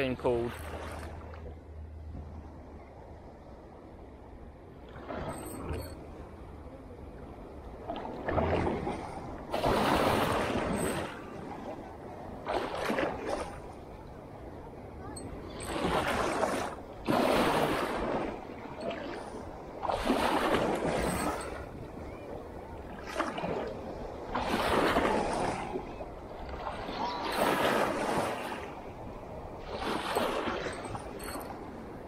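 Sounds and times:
waves washing against rocks: 8.1s - 13.9s, 15.2s - 31.8s.

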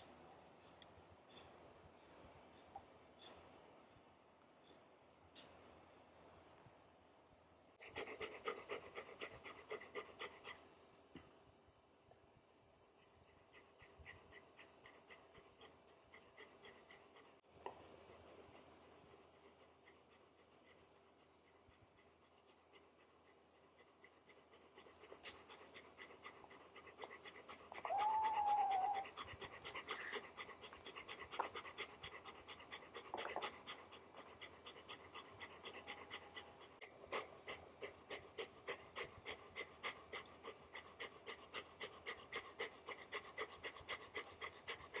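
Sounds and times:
dog panting: 7.8s - 10.7s, 12.9s - 45.0s.

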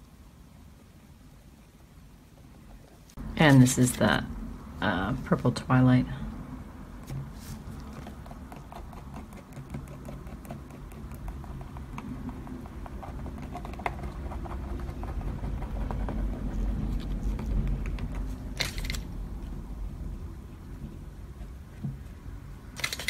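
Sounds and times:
low steady hum: 0.0s - 23.0s
brush tapping surface: 7.0s - 18.9s.

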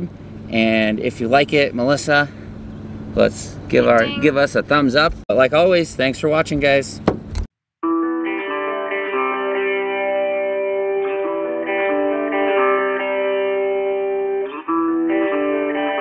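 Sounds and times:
guitar plucked notes: 3.8s - 4.5s, 7.8s - 16.0s.

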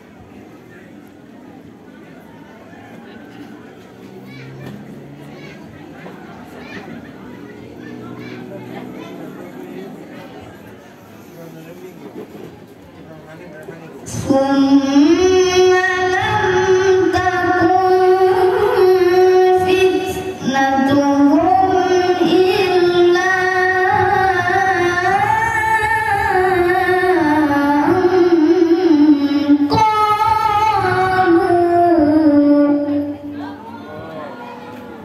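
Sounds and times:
boy reciting melodically over pa: 14.0s - 35.0s.

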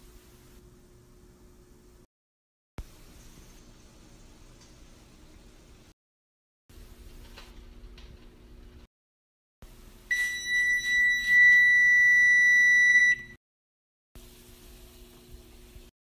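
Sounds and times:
oven keypad beeping: 10.1s - 13.4s.

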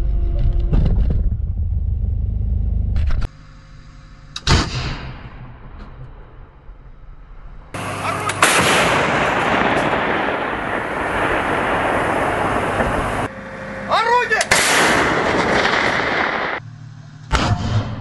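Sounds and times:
artillery gun blast with rolling rumble: 7.8s - 13.3s, 14.5s - 16.6s.

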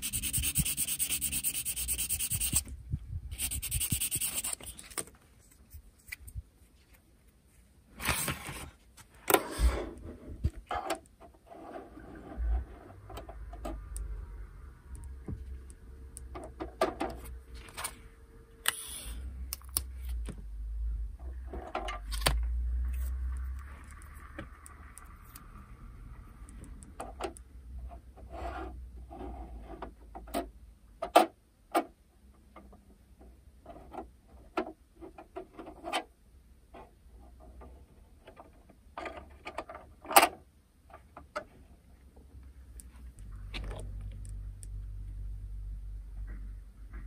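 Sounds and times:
scraping and rubbing: 0.0s - 2.7s, 3.3s - 7.0s.

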